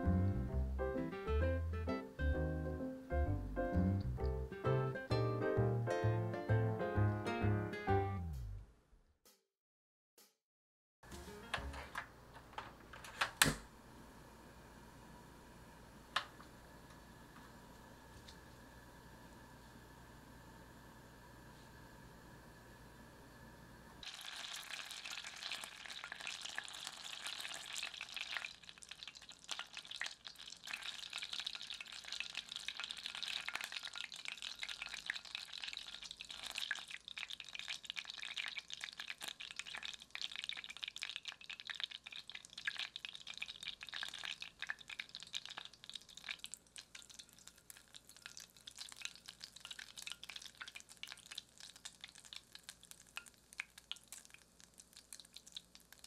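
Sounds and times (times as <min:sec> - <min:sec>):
butter sizzling in a saucepan: 0:24.0 - 0:56.0.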